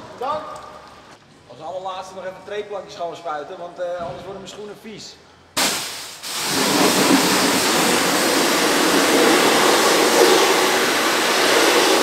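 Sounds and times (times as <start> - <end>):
pressure washer spraying metal: 5.6 - 12.0.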